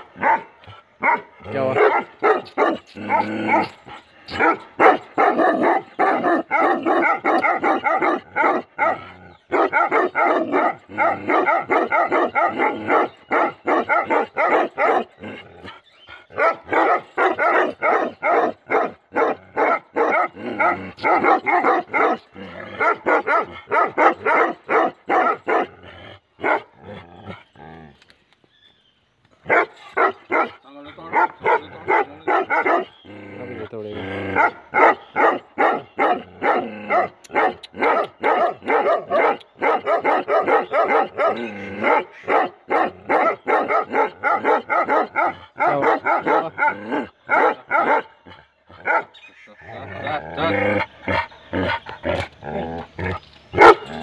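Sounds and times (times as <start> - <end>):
dogs barking rapidly: 0.0 - 25.8, 26.4 - 26.8, 29.4 - 33.1, 34.2 - 54.0.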